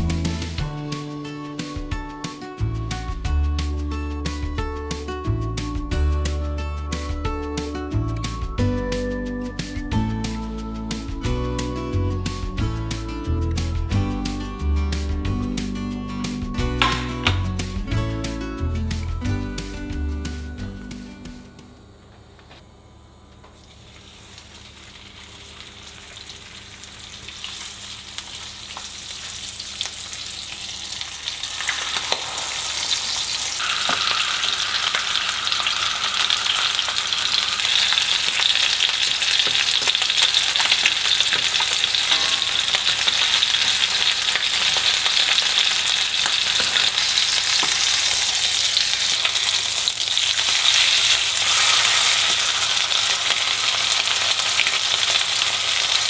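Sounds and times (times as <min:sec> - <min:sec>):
chicken sizzling in a pan: 0:23.6 - 0:56.0.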